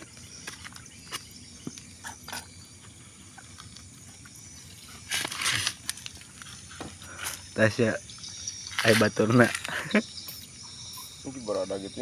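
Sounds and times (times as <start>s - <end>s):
eel scraping rustle on concrete: 4.5s - 7.6s, 8.3s - 9.8s.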